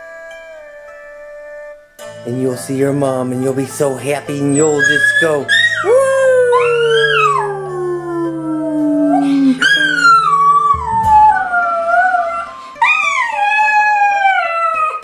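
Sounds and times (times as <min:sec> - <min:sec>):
small dog howling: 0:04.6 - 0:15.0.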